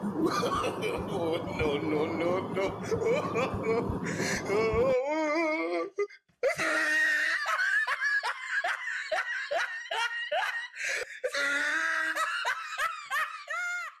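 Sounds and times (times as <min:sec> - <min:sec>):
small child laughing: 0:00.1 - 0:04.8.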